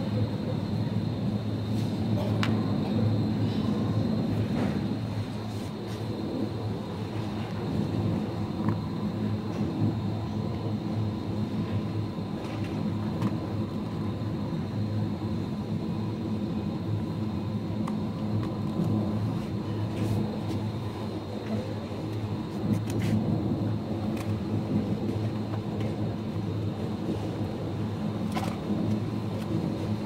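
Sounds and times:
faint steady whine: 0:00.0 - 0:30.0.

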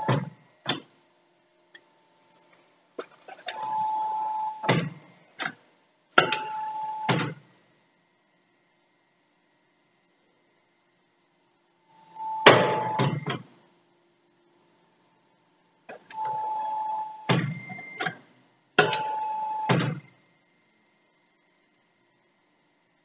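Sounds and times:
hydraulic press whine: 0:03.3 - 0:05.6, 0:06.2 - 0:07.4, 0:12.0 - 0:13.5, 0:15.9 - 0:18.2, 0:18.8 - 0:20.1
sharp metallic clunks: 0:12.4 - 0:13.4.

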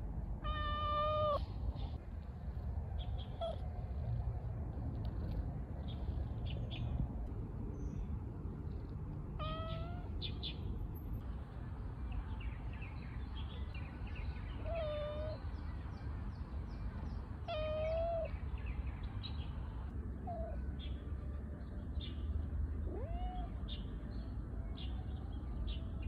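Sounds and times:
cat meowing: 0:00.4 - 0:01.4, 0:09.4 - 0:10.1, 0:14.6 - 0:15.4, 0:17.5 - 0:18.3, 0:22.9 - 0:23.6.

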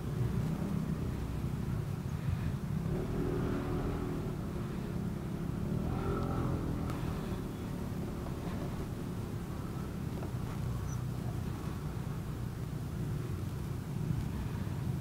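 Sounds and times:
traffic engines rumbling: 0:00.0 - 0:15.0
nearby engine revving: 0:02.3 - 0:10.9.

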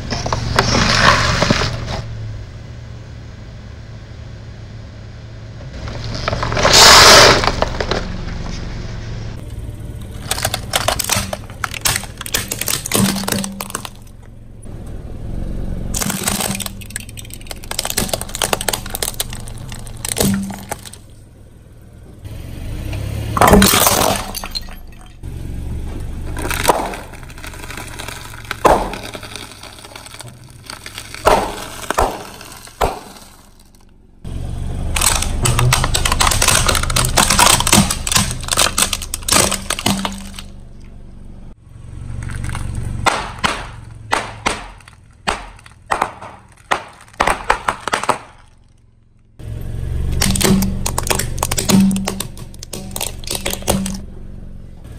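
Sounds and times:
tyre crushing plastic toys: 0:00.0 - 0:02.0, 0:05.8 - 0:08.3, 0:10.0 - 0:14.2, 0:15.9 - 0:21.1, 0:23.4 - 0:25.1, 0:26.3 - 0:33.8, 0:34.9 - 0:40.6, 0:42.2 - 0:48.9, 0:50.1 - 0:54.0
low car rumble: 0:00.0 - 0:54.9.

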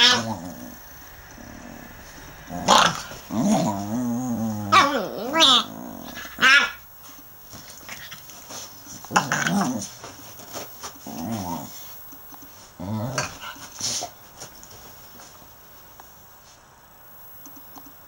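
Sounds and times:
dogs growling: 0:00.0 - 0:06.8, 0:07.5 - 0:14.1
dogs scuffling: 0:07.0 - 0:15.9.

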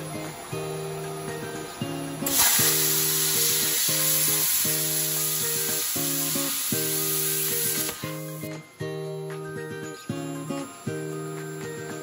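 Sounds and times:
plasma cutter arc hissing: 0:02.2 - 0:08.5.

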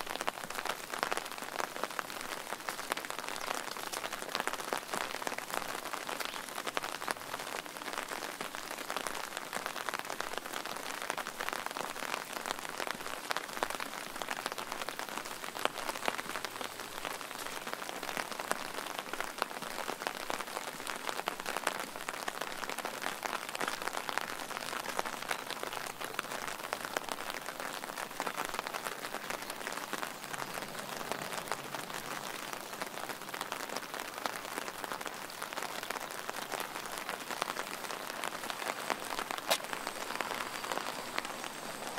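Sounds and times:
rain drops on hard surface: 0:00.0 - 0:41.9.

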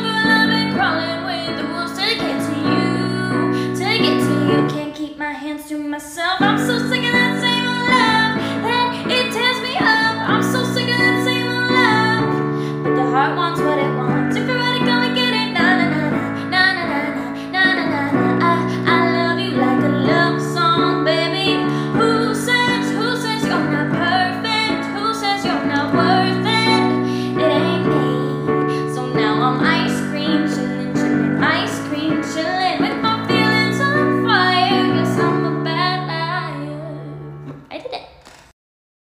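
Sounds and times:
woman singing: 0:00.0 - 0:37.6
keyboard chords: 0:06.4 - 0:37.6.

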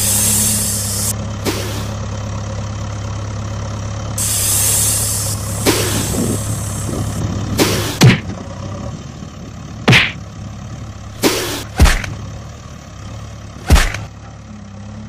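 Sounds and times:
air hissing: 0:00.0 - 0:02.0, 0:04.2 - 0:08.1, 0:11.1 - 0:12.1
diesel engine idling: 0:00.0 - 0:15.0.

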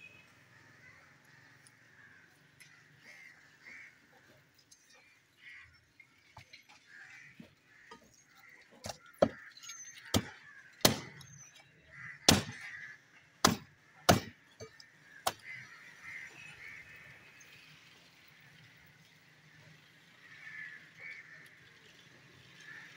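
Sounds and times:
cleaver chopping on wooden block: 0:08.8 - 0:09.4, 0:10.1 - 0:11.3, 0:12.3 - 0:12.7, 0:13.4 - 0:15.4.

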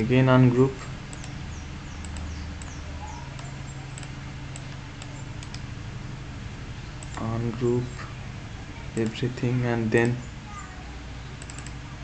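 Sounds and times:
low background hum: 0:00.0 - 0:12.0
computer mouse clicks: 0:01.1 - 0:01.4, 0:02.0 - 0:02.8, 0:03.4 - 0:05.7, 0:07.0 - 0:07.3, 0:09.0 - 0:09.2, 0:11.4 - 0:11.8.

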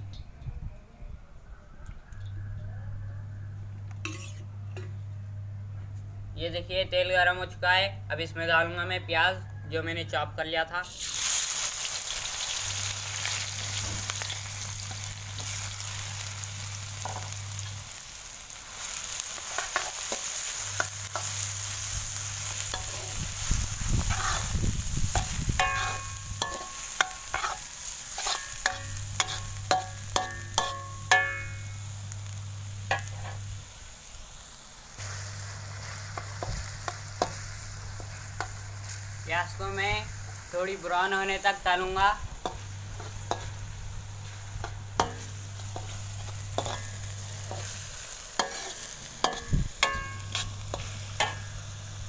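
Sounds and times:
onions sizzling in hot oil: 0:10.8 - 0:52.0
metal ladle scraping pan: 0:24.0 - 0:24.6, 0:25.2 - 0:31.8, 0:42.5 - 0:47.8, 0:48.4 - 0:51.6
ladle striking pan: 0:25.2 - 0:31.8, 0:44.6 - 0:47.7, 0:48.4 - 0:51.6.

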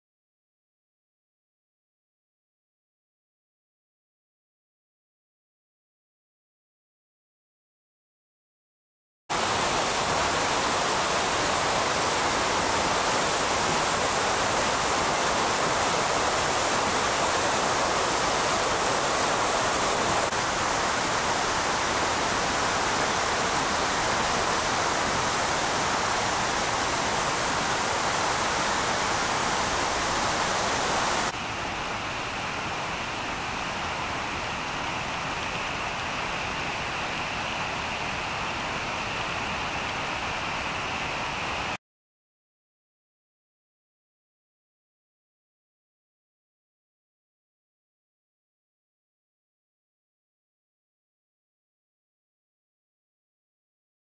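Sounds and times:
river rushing water roar: 0:09.3 - 0:41.8.

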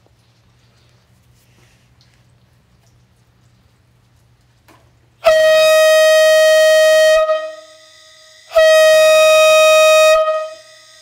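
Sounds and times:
air horn blasts: 0:05.2 - 0:11.0.

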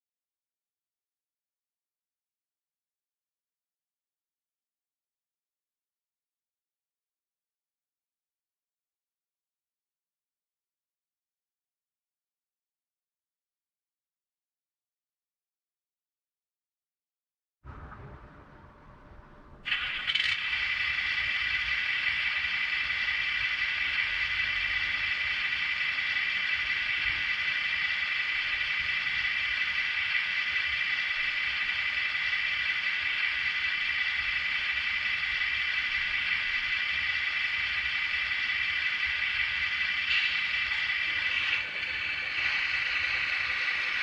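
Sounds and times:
diesel engine idle through small speaker: 0:19.8 - 0:44.0.

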